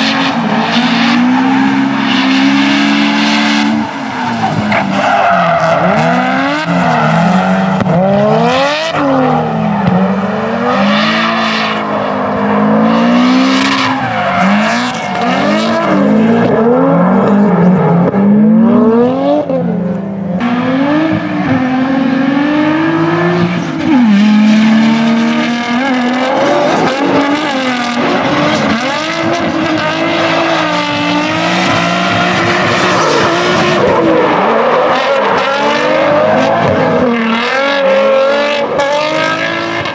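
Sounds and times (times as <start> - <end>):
tire squeal: 0.0 - 18.0, 25.7 - 39.9
car engines revving: 0.0 - 39.9.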